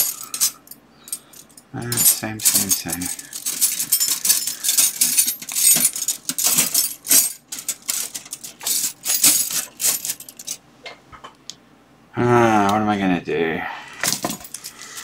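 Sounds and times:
wire hooks clinking and jangling: 0.0s - 10.6s, 14.0s - 15.0s.

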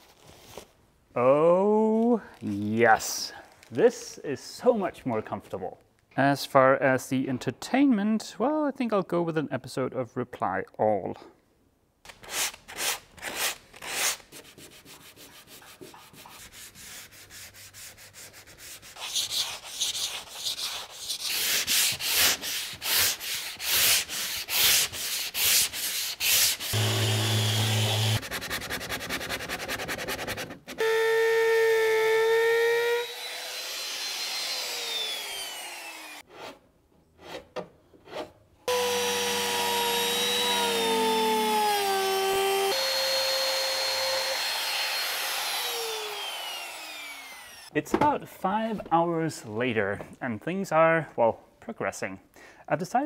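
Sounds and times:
hand sanding scraping strokes: 12.2s - 30.7s
electric orbital sander whine: 26.7s - 28.2s, 32.7s - 36.2s, 38.7s - 47.7s.

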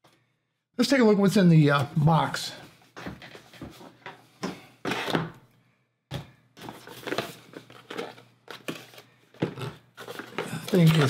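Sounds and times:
packaging rustling and crinkling: 6.6s - 11.0s.

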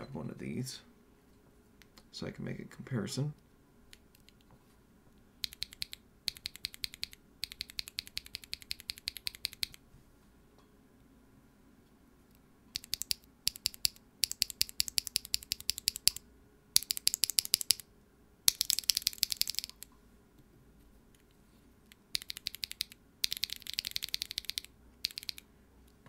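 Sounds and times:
mechanical keyboard clacking: 5.4s - 9.8s, 12.7s - 16.2s, 16.8s - 17.8s, 18.5s - 19.9s, 22.2s - 25.4s.

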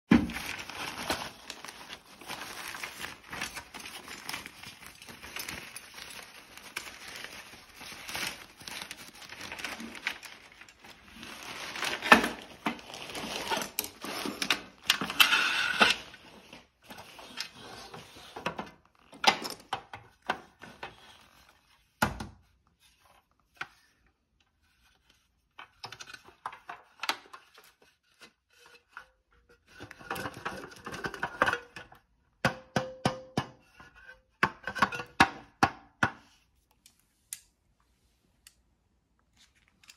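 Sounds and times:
carry bag rustling: 0.2s - 14.8s.

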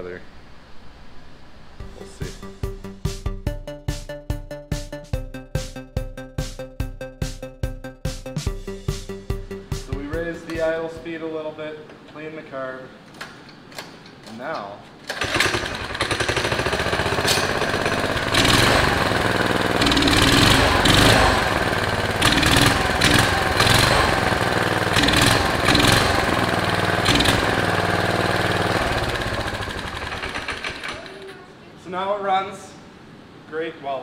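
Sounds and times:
go-kart engine revving: 15.1s - 31.3s.

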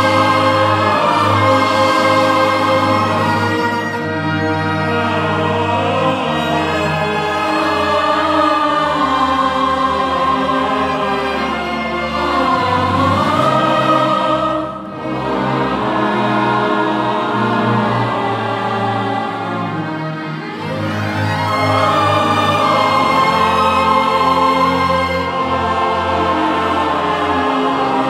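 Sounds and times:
choir singing held chords: 0.0s - 28.0s
symphony orchestra: 0.0s - 28.0s.

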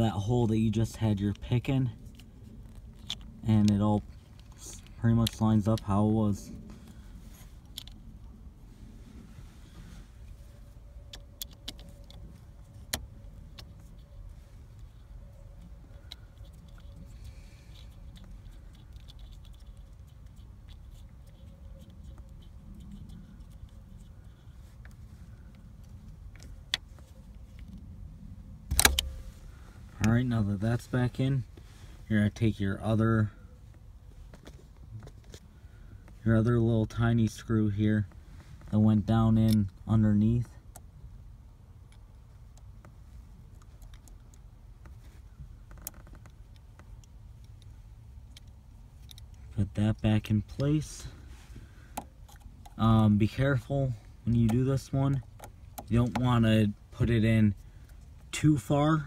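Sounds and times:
low steady rumble: 0.0s - 59.0s
sharp click: 28.7s - 29.2s.

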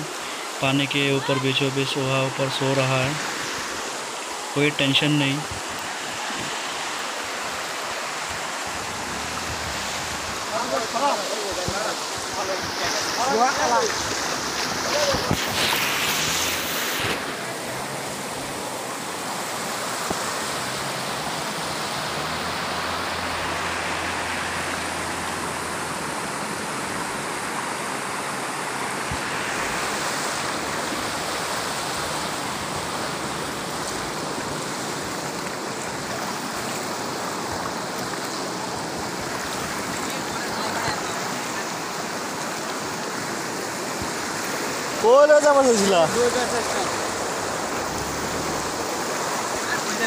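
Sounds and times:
floodwater rushing: 0.0s - 50.0s.

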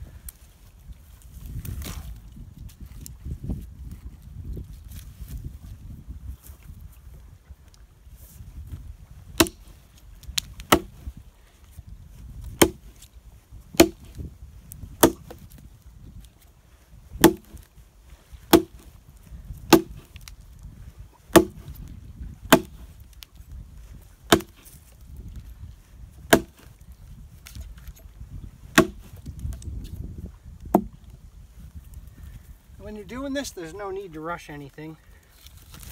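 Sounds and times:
axe chopping a dry log: 9.3s - 9.7s, 10.4s - 11.1s, 12.5s - 13.0s, 13.7s - 14.3s, 14.9s - 15.5s, 17.2s - 17.7s, 18.5s - 19.0s, 19.6s - 20.3s, 21.3s - 21.8s, 22.4s - 22.9s, 24.3s - 24.8s, 26.2s - 26.7s, 28.7s - 29.8s, 30.7s - 31.0s.

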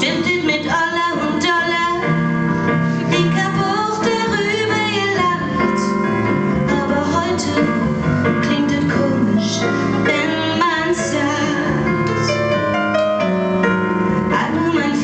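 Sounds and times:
woman singing into microphone: 0.0s - 2.2s, 3.1s - 6.0s, 6.7s - 12.4s, 14.3s - 15.0s
instrumental accompaniment: 0.0s - 15.0s.

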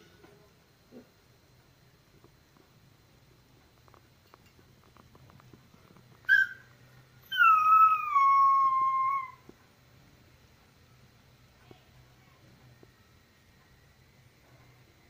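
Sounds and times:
puppy whining: 6.2s - 9.5s
puppy yelp: 6.3s - 9.4s.

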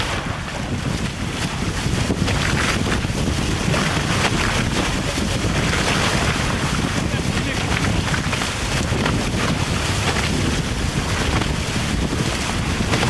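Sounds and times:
water rushing off hulls: 0.0s - 13.0s
wind buffeting microphone: 0.0s - 13.0s.

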